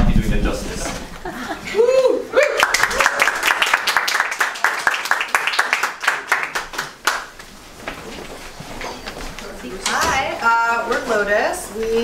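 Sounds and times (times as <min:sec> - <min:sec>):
audience clapping: 0:02.4 - 0:07.6.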